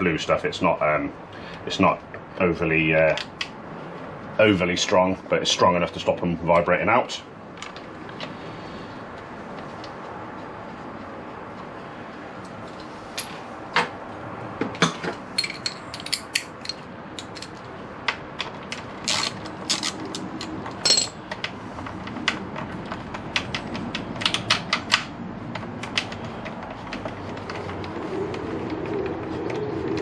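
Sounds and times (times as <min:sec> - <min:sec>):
metal hand tools clinking: 0:15.4 - 0:17.6, 0:19.1 - 0:21.2
ratchet wrench clicking: 0:19.0 - 0:21.1.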